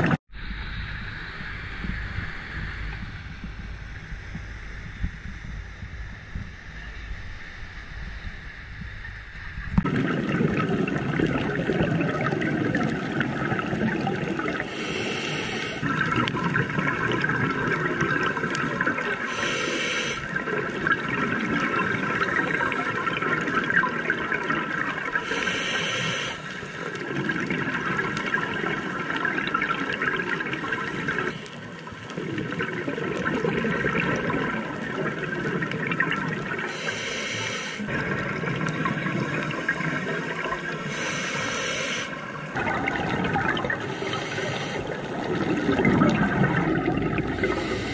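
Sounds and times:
air bubbling underwater: 9.7 - 15.1, 15.8 - 19.0, 42.5 - 47.9.

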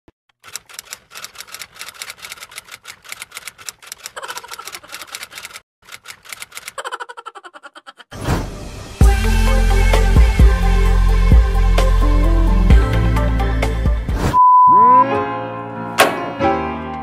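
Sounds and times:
rapid keyboard clicks: 0.3 - 7.3.

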